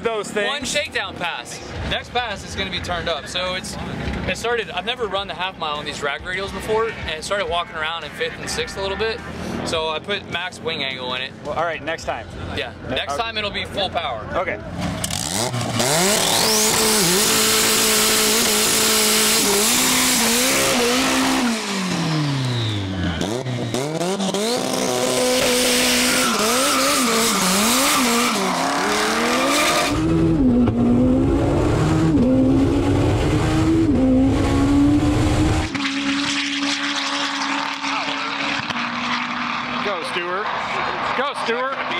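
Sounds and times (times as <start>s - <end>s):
race car engine accelerating: 14.7s - 41.9s.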